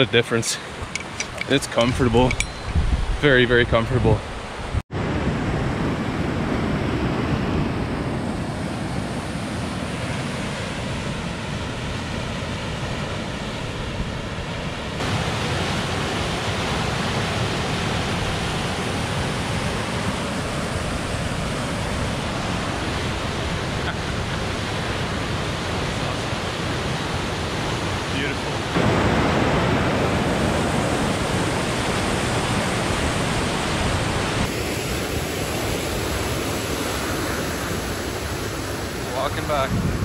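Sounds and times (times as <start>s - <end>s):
rushing whitewater: 15.0s - 39.7s.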